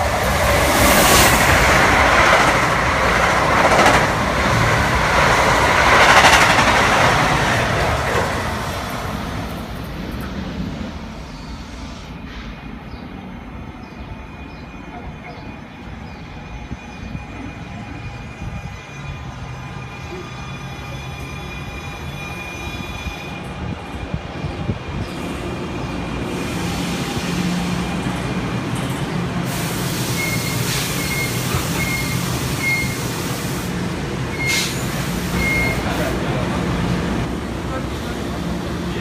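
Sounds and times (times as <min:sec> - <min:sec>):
train braking to a stop: 0:11.0 - 0:28.0, 0:28.9 - 0:37.0
squealing wheels and brakes: 0:14.3 - 0:23.6, 0:30.1 - 0:33.0, 0:34.3 - 0:36.0.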